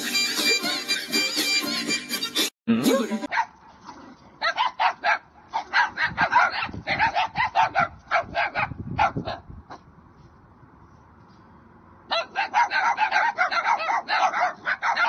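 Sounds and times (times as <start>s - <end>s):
dogs barking: 3.3s - 9.8s, 12.1s - 15.0s.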